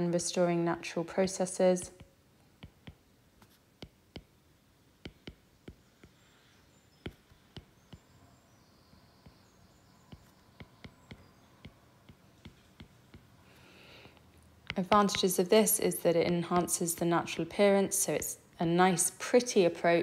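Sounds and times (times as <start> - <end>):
low room hiss: 0.0 - 20.0
stylus tapping on tablet screen: 1.8 - 8.2, 9.2 - 17.4.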